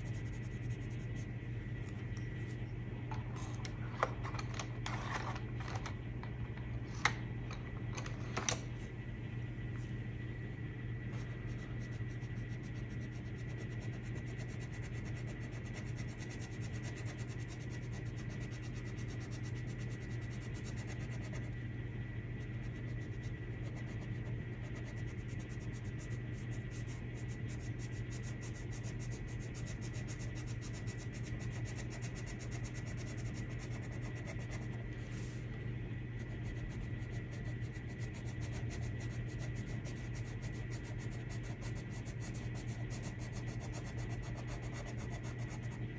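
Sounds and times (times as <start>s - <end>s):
pencil scratching on paper: 0.0s - 2.6s, 11.2s - 21.6s, 22.4s - 34.8s, 36.2s - 45.8s
steady low hum: 0.0s - 45.9s.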